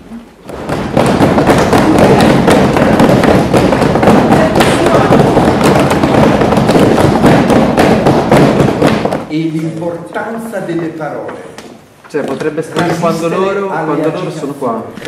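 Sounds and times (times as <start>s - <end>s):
group of people clapping: 0.4s - 9.3s.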